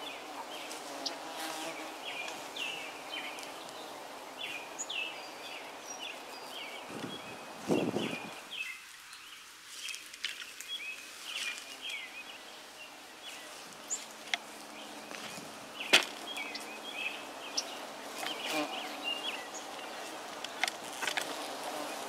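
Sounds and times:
birds chirping: 0:00.0 - 0:22.0
bees humming: 0:11.8 - 0:22.0.

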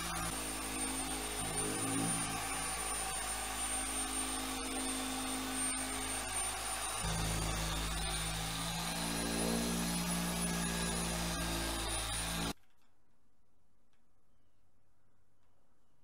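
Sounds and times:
power tool motor whine: 0:00.0 - 0:12.6.

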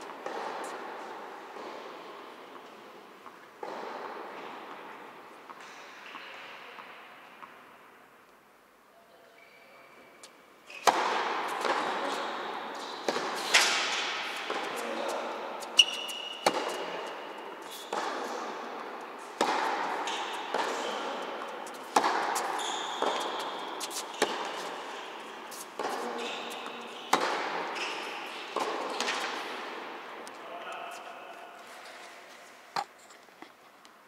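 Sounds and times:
rackets hitting tennis ball: 0:00.0 - 0:02.0, 0:02.6 - 0:04.9, 0:10.7 - 0:32.1
ball bouncing on court: 0:10.8 - 0:14.8, 0:15.7 - 0:18.4, 0:19.3 - 0:25.0, 0:25.8 - 0:30.8.

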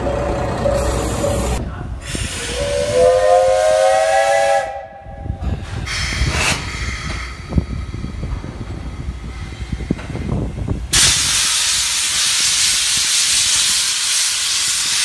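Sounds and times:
steam hissing: 0:00.7 - 0:04.8, 0:05.5 - 0:15.0
steam locomotive whistle: 0:02.4 - 0:05.4.

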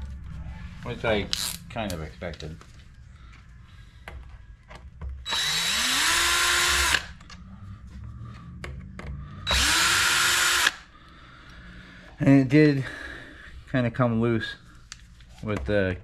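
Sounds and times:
cordless drill whining: 0:05.3 - 0:07.2, 0:09.4 - 0:10.8.

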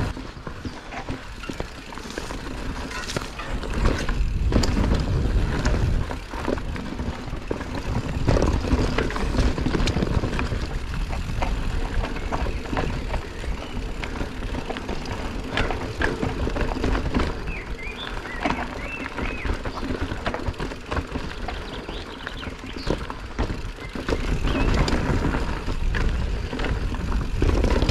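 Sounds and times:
bike rattling and clattering: 0:00.0 - 0:27.9
bike tyres rolling over rough ground: 0:00.0 - 0:27.9
short squeaks: 0:02.8 - 0:04.2.

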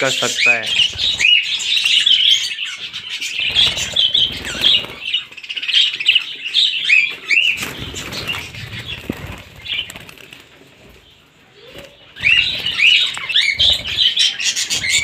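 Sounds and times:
budgerigars chirping and chattering: 0:00.0 - 0:15.0
wings flapping: 0:00.7 - 0:01.6, 0:03.3 - 0:05.2, 0:07.1 - 0:15.0.

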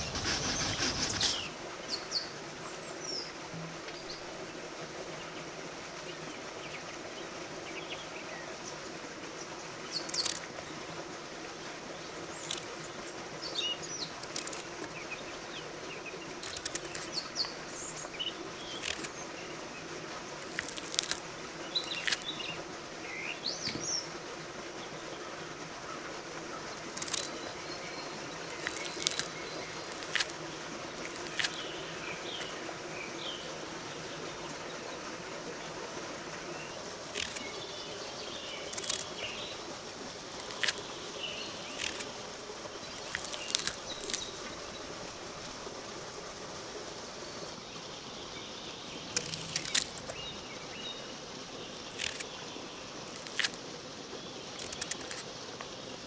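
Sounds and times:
knife cutting pomegranate rind: 0:00.0 - 0:01.5.

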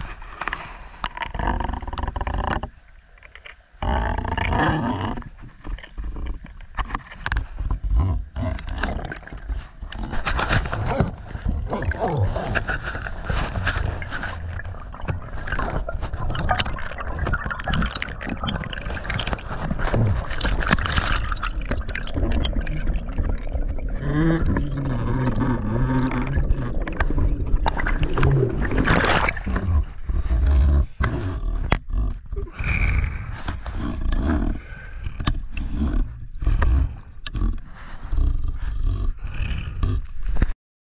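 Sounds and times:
water rushing underwater: 0:08.0 - 0:31.0.

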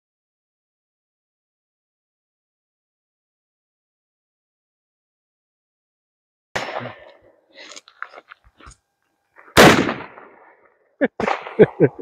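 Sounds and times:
shotgun shot with echo: 0:06.6 - 0:07.0, 0:09.6 - 0:10.4, 0:11.2 - 0:11.8.

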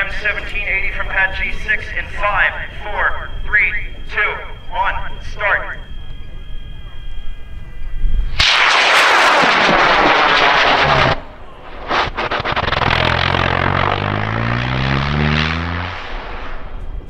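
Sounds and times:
sharp crack: 0:08.3 - 0:16.9
rocket motor roaring: 0:08.3 - 0:17.0.

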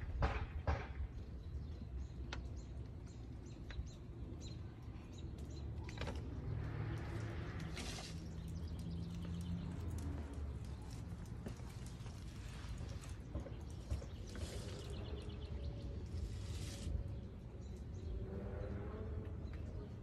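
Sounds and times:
small birds chirping: 0:01.2 - 0:18.7.

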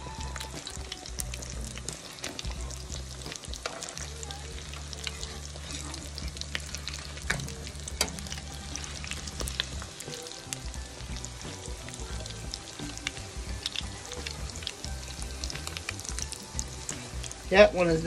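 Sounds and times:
patties sizzling in oil: 0:00.0 - 0:18.0.

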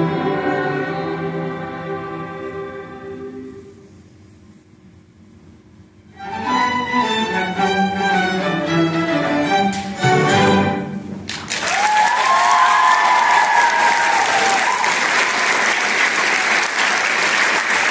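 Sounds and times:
string orchestra playing chords: 0:00.0 - 0:04.2, 0:06.0 - 0:11.3
audience applause: 0:11.3 - 0:17.9
audience cheering: 0:11.5 - 0:17.9.

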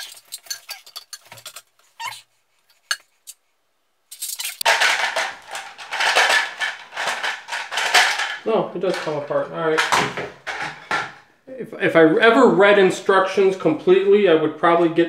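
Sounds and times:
plastic parts clicking and rattling: 0:00.0 - 0:02.2, 0:04.2 - 0:11.2.

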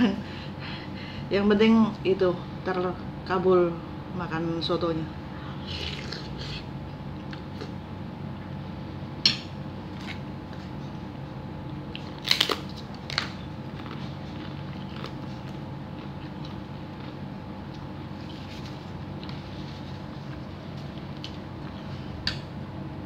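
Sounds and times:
steady low hum: 0:00.0 - 0:23.0
cracker crunching: 0:11.6 - 0:22.5.

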